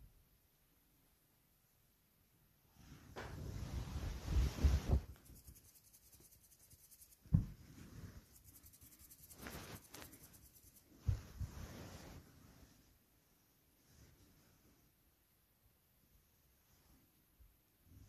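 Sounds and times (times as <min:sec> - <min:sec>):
close rustling and rubbing: 0:02.8 - 0:14.9.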